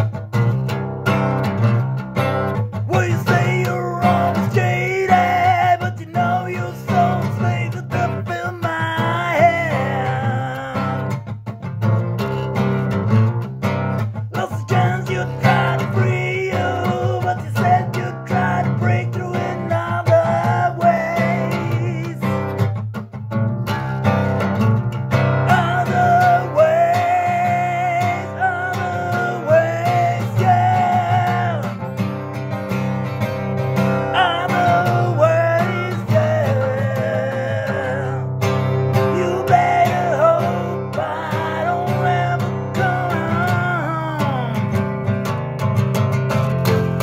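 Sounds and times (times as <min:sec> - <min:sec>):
guitar plucked and strummed: 0:00.0 - 0:47.0
man singing: 0:02.7 - 0:11.3, 0:14.0 - 0:22.8, 0:25.4 - 0:32.3, 0:33.8 - 0:45.0.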